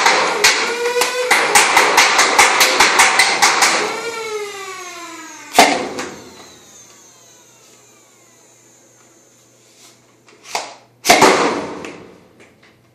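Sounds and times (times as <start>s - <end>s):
flywheel motors whining: 3.8s - 9.6s
foam dart blaster firing: 5.5s - 6.2s, 11.0s - 12.0s
loud snap: 5.5s - 6.4s, 10.5s - 12.2s.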